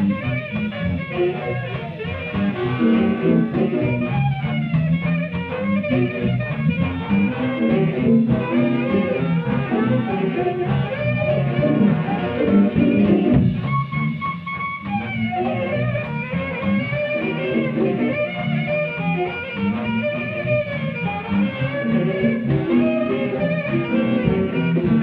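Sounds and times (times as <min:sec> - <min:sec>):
jazz big band playing swing: 0:00.0 - 0:25.0.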